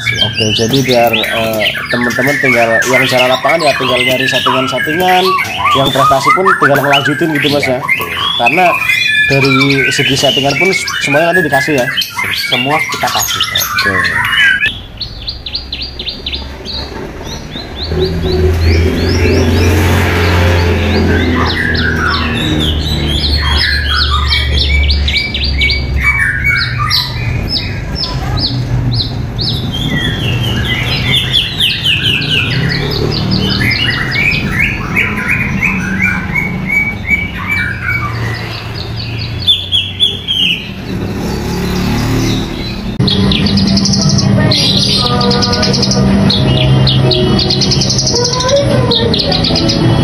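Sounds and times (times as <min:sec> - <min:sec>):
songbird singing trills and whistles: 0:00.0 - 0:50.0
faint background music: 0:43.0 - 0:50.0.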